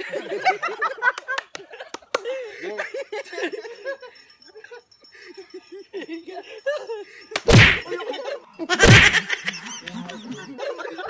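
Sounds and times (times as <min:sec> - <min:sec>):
men laughing and giggling: 0:00.0 - 0:11.0
sharp smack: 0:07.4 - 0:07.8, 0:08.8 - 0:09.2
loud heavy thump: 0:07.5 - 0:07.8, 0:08.9 - 0:09.2.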